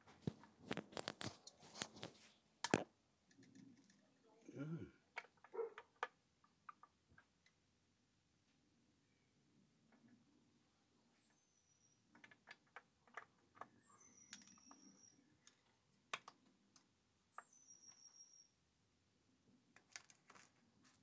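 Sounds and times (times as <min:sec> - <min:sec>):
faint high whistles: 0:11.2 - 0:12.1, 0:13.8 - 0:15.4, 0:17.3 - 0:18.6.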